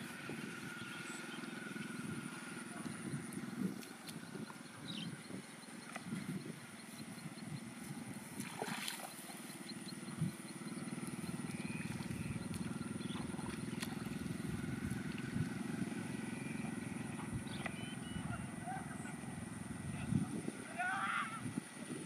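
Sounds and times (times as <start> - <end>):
feet wading through water: 0.0 - 19.8
steady low drone: 0.0 - 20.7
faint bird chirps: 0.3 - 8.1, 9.1 - 15.1, 16.1 - 19.2.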